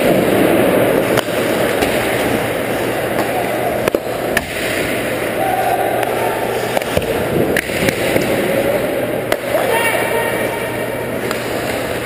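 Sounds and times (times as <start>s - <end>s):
hockey stick hitting puck: 0.0s - 5.0s, 6.0s - 8.4s, 9.3s - 9.8s, 11.2s - 12.0s
skates scraping ice: 0.0s - 5.4s, 11.2s - 12.0s.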